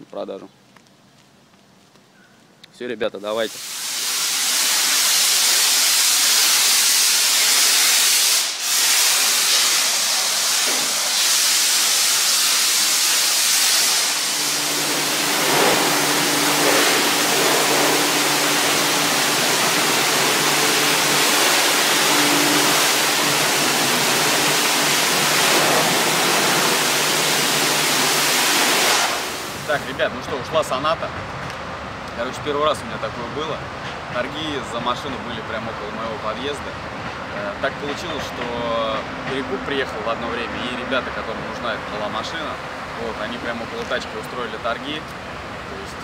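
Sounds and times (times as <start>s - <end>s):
pressure washer spraying water: 3.4s - 30.0s.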